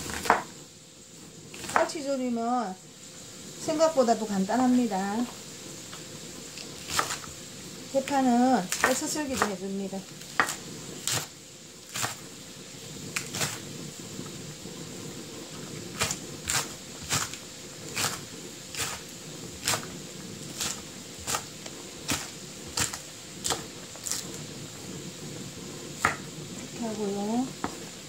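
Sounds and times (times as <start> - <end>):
steady low hum: 0.0 - 28.0
knife chopping on wooden board: 0.1 - 0.5, 6.9 - 7.3, 8.7 - 9.6, 10.3 - 11.3, 26.0 - 26.3.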